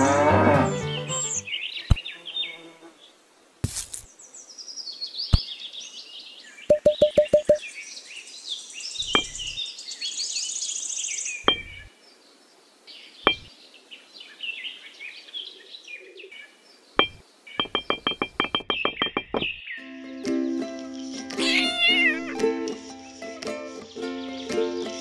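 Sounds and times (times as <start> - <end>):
birds chirping and twittering: 0.7 - 3.2, 4.0 - 22.1, 22.9 - 25.0
high bird trill: 9.0 - 9.6, 11.4 - 11.9, 13.3 - 13.5, 17.0 - 19.8, 21.4 - 22.4.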